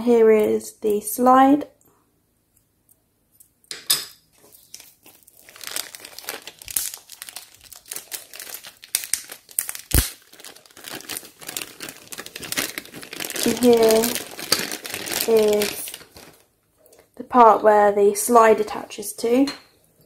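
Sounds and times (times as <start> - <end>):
plastic bag crinkling: 4.3 - 16.5.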